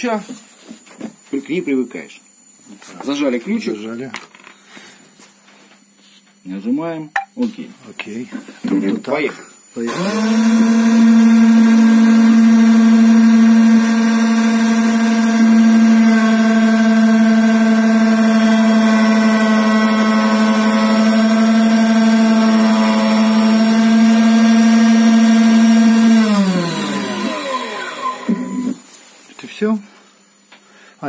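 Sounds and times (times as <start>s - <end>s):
cutter spindle whining: 9.8s - 28.8s
motor spinning down: 9.8s - 28.8s.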